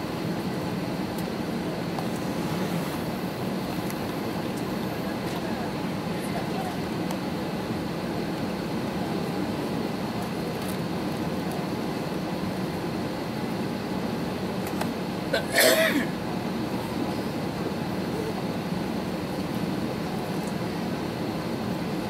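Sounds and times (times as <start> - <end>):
airliner cabin hum: 0.0 - 22.0
person coughing: 15.3 - 16.1.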